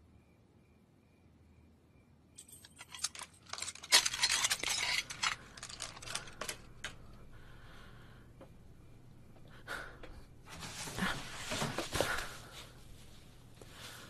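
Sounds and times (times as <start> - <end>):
light metallic clinks and rattles: 2.4 - 7.2.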